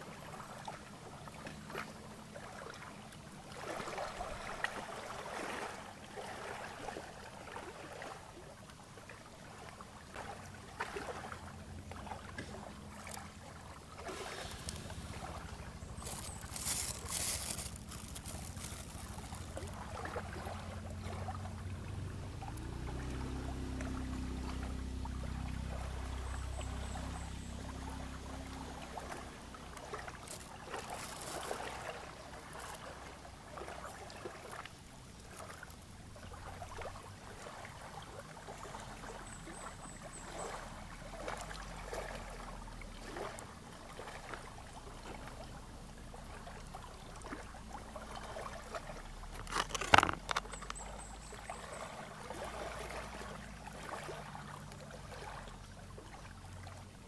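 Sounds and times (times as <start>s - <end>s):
small waves lapping: 0.0s - 57.0s
handling clicks and rustles: 14.4s - 20.0s, 30.0s - 31.6s, 49.3s - 51.4s.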